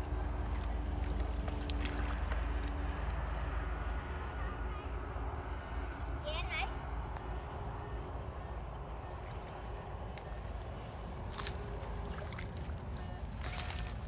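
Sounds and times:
high whine: 0.0 - 14.0
footsteps wading through wet grass: 0.1 - 3.5, 10.5 - 14.0.

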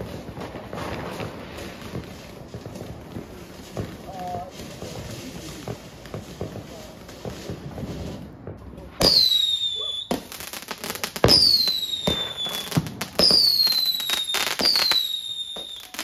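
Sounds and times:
firework crackling: 0.0 - 16.0
fireworks launching with bangs: 0.0 - 16.0
falling firework whistle: 9.0 - 16.0.

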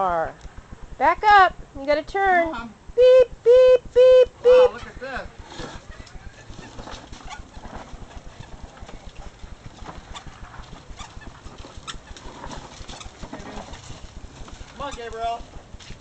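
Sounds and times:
plastic toy wheels rattling on dirt: 5.2 - 16.0.

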